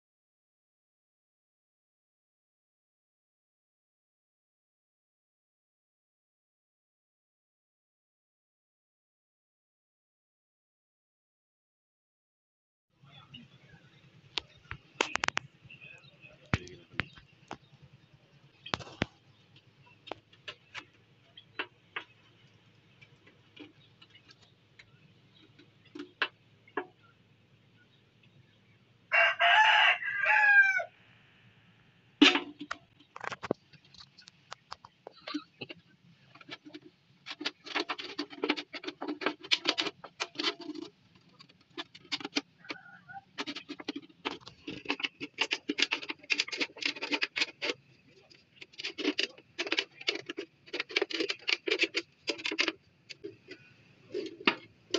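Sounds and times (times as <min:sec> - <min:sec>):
rooster crowing: 0:29.1 - 0:31.0, 0:42.6 - 0:43.3
scissors cutting tin can: 0:48.7 - 0:53.3.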